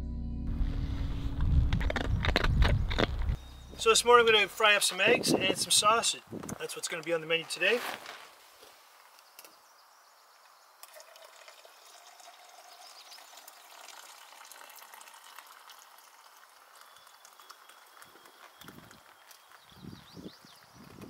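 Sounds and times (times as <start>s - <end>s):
coffee trickling into tumbler: 10.8s - 21.0s.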